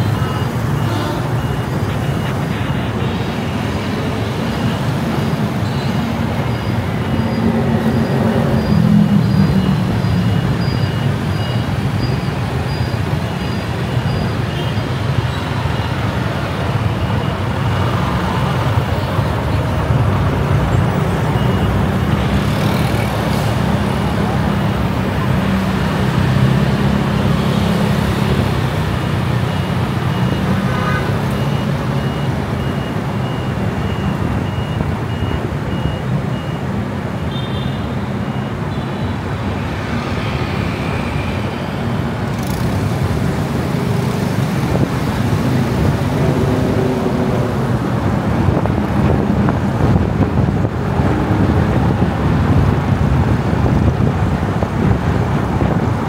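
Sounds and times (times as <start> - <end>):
faint high beep: 0.0 - 3.8, 4.4 - 16.0
city road traffic: 0.0 - 56.0.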